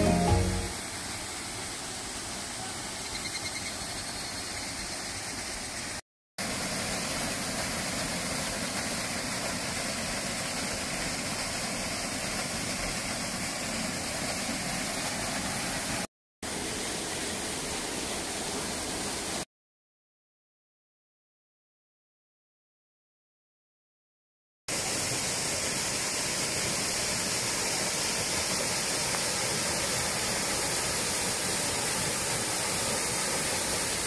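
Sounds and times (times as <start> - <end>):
waterfall rushing over rocks: 6.4 - 19.4, 24.7 - 34.0.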